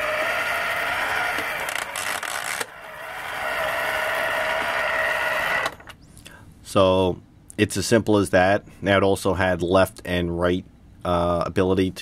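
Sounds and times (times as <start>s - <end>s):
toy tank motor whining: 0.0s - 6.0s.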